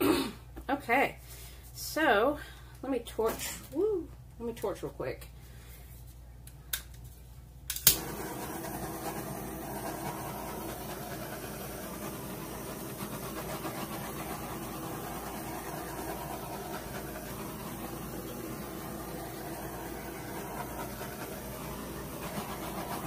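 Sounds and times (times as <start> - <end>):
igniter clicks: 7.7 - 8.5
gas torch flame hissing: 7.8 - 23.0.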